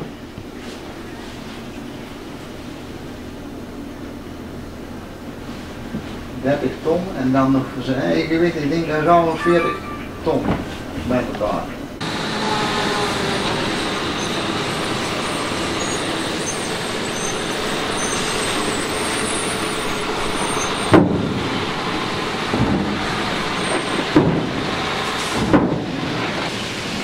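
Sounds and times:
truck diesel engine running: 11.8s - 27.0s.

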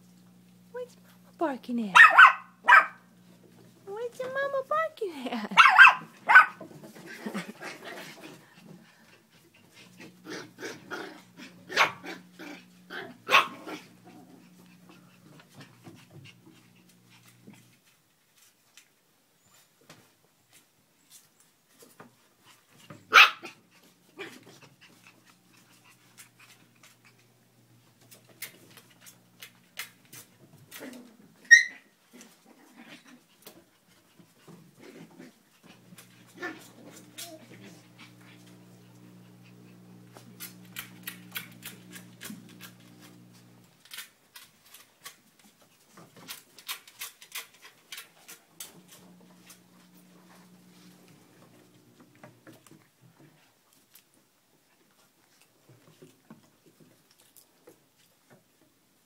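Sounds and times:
dog barking: 1.9s - 3.0s, 5.6s - 6.6s, 11.7s - 12.0s, 13.3s - 13.7s, 23.1s - 23.6s
steady low hum: 35.7s - 43.7s
claws clicking on wooden boards: 43.8s - 48.8s.

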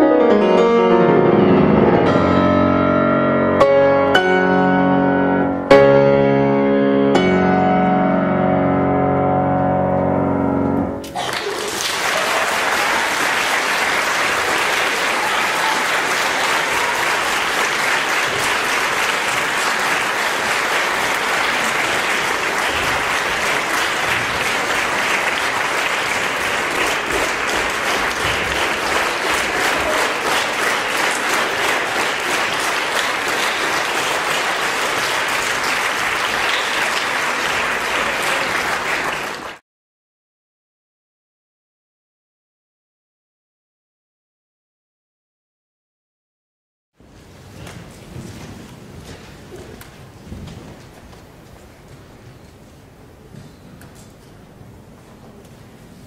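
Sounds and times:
piano chord ringing: 0.0s - 11.0s
audience applauding: 11.0s - 39.6s.

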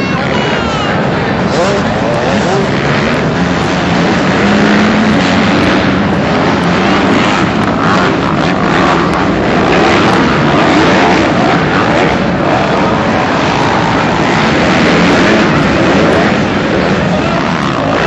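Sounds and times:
motocross bikes revving: 0.0s - 18.0s.

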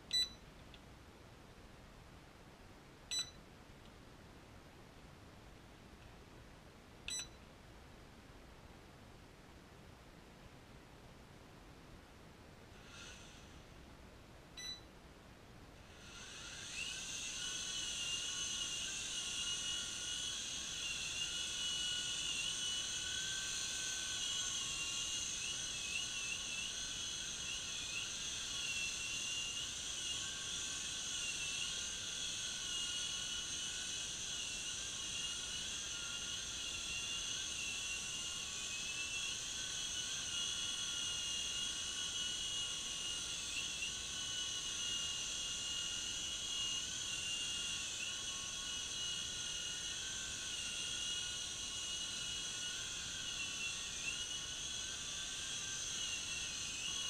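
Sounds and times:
toy helicopter motor whine: 12.7s - 13.7s, 15.9s - 57.0s.

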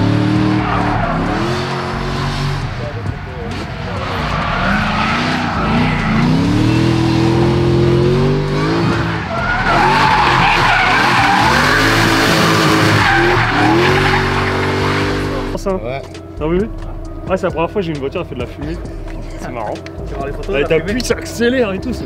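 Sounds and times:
car engine revving: 0.0s - 22.0s
tyres squealing: 0.1s - 15.6s.

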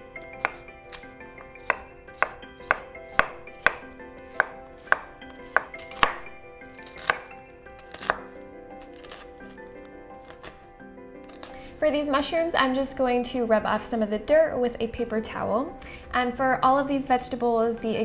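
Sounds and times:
knife chopping on wooden board: 0.2s - 9.5s, 10.2s - 10.6s, 11.2s - 11.6s.

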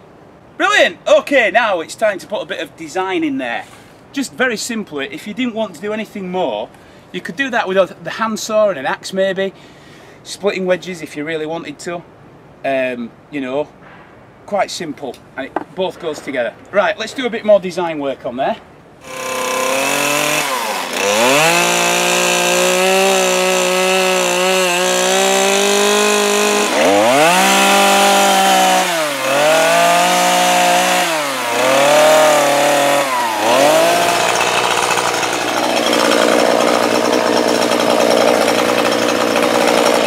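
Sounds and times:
chainsaw cutting wood revving: 19.0s - 40.0s.

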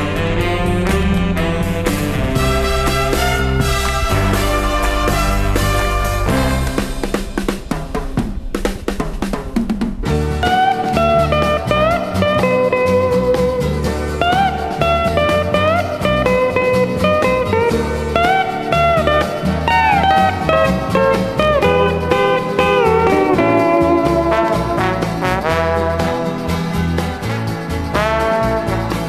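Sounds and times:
drum fill: 0.0s - 29.0s.

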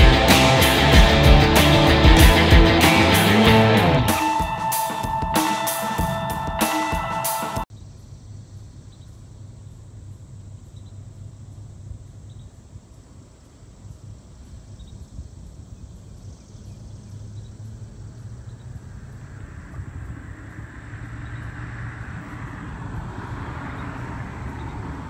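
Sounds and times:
faint insects chirping: 7.7s - 25.0s.

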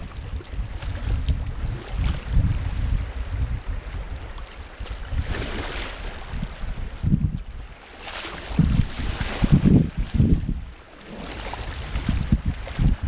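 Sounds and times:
paddle dipping into water: 0.0s - 13.0s
whitewater rushing and splashing: 0.0s - 13.0s
wind buffeting microphone: 0.0s - 13.0s.

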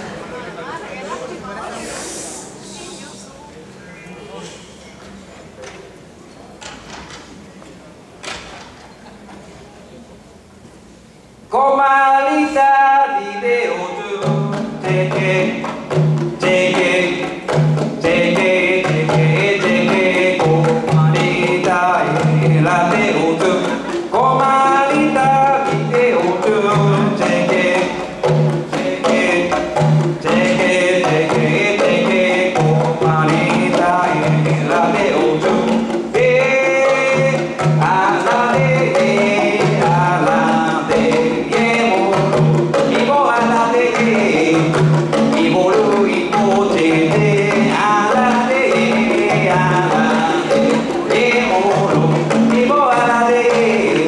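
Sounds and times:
man singing: 11.5s - 54.0s
hand drum playing: 13.0s - 54.0s.

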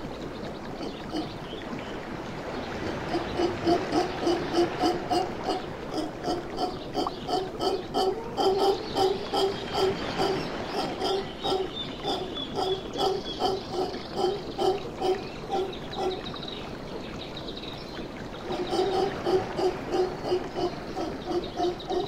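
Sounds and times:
howler monkeys grunting: 3.0s - 16.2s, 18.5s - 22.0s.

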